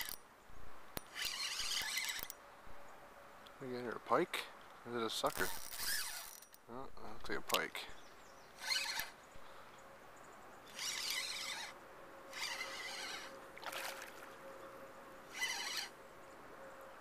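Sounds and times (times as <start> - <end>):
fishing reel buzzing: 1.0 - 2.3, 5.4 - 6.5, 8.6 - 9.1, 10.7 - 14.0, 15.3 - 16.0.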